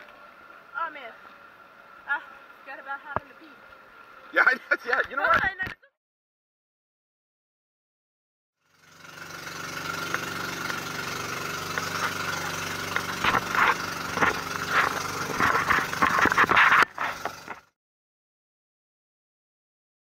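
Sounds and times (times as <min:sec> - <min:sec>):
engine running: 0:00.0 - 0:05.8, 0:08.6 - 0:17.8
irregular knocks and clatter: 0:11.7 - 0:17.7.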